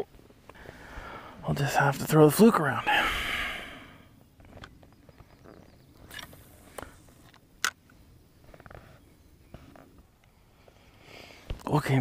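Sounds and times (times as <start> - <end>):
clicks and rustles of fishing rod: 6.0 - 9.0.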